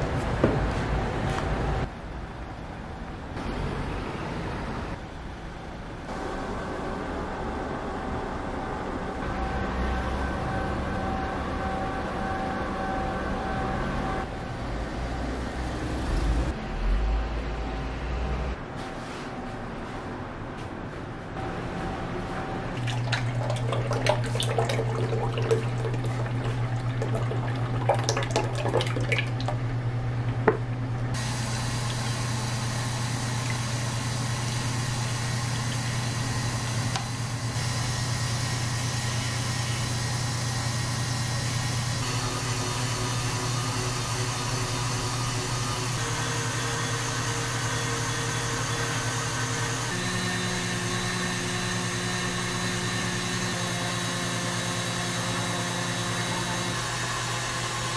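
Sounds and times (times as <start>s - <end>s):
liquid splashing: 22.8s - 29.7s
stand mixer motor whirring: 31.2s - 57.9s.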